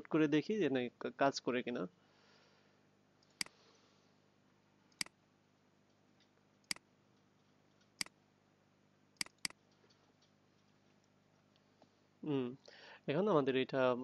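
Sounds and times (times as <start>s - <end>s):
computer mouse clicking: 4.9s - 5.2s, 9.2s - 10.7s.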